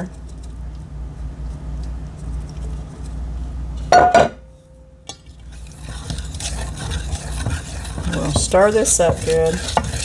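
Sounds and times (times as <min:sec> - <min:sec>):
ringing enamelware clank: 0:03.9 - 0:04.5
flour scraped from bowl: 0:05.5 - 0:10.0.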